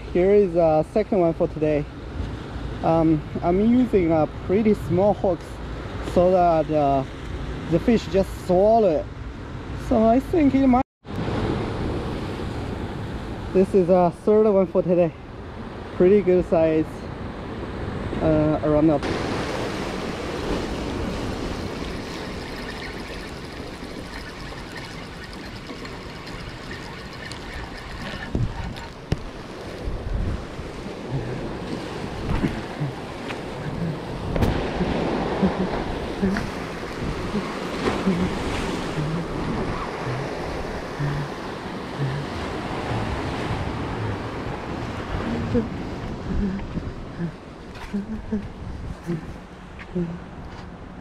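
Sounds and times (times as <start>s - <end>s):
surf washing over rocks: 18.2s - 46.3s
wind buffeting microphone: 19.0s - 51.0s.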